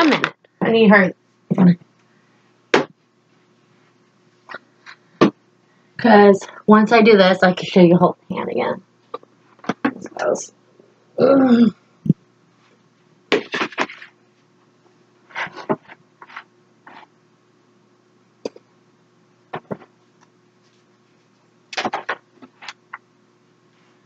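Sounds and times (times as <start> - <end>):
woman murmuring: 11.2 - 11.8.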